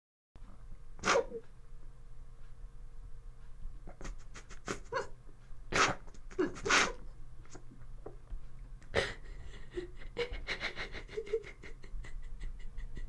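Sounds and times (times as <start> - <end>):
woman sobbing: 6.3 - 7.0, 8.9 - 13.0.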